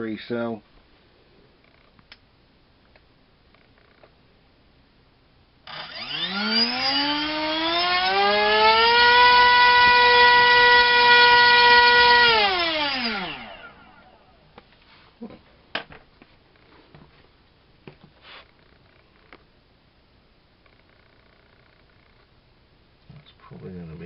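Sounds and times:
electric motor and propeller whine: 0:05.6 - 0:14.4.

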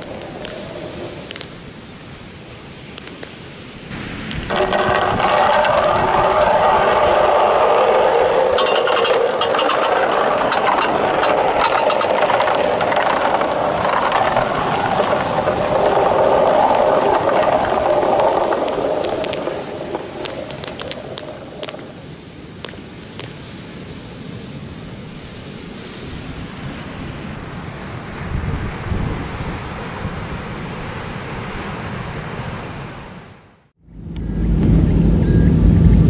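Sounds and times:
balls clicking together: 0:04.3 - 0:22.0
balls rolling down plastic chutes: 0:04.4 - 0:22.1.

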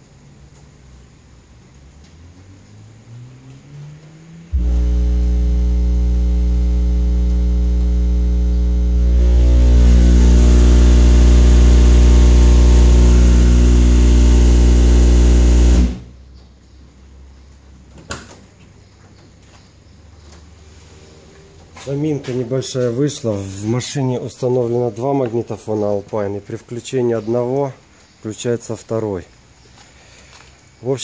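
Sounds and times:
loud deep bass tone: 0:04.5 - 0:16.1.

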